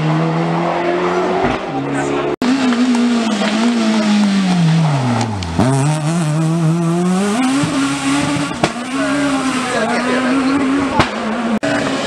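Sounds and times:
car engine at high revs: 0.0s - 12.0s.

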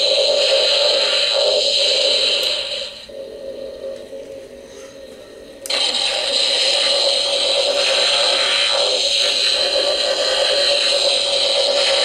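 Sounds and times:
electronic blaster sound effect: 5.7s - 12.0s.

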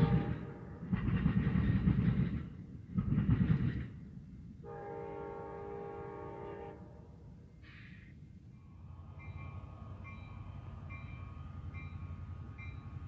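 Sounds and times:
train air horn chord: 0.0s - 0.7s, 4.6s - 7.2s
train cars rumbling past: 0.0s - 13.0s.

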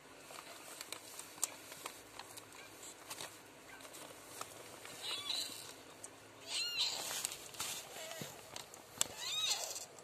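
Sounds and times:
faint clicks and rustles: 0.0s - 10.0s
cat mewing: 5.0s - 5.7s, 6.4s - 7.2s, 9.1s - 9.8s.

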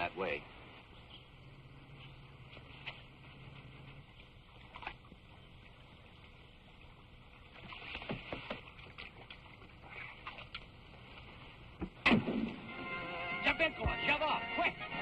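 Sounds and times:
soundtrack hiss: 0.0s - 8.5s, 9.7s - 15.0s
canoe paddles splashing in water: 7.5s - 10.4s.

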